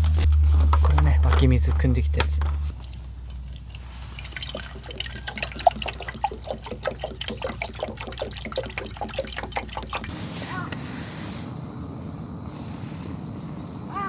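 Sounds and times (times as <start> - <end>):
water pouring into metal pot: 2.7 - 10.1.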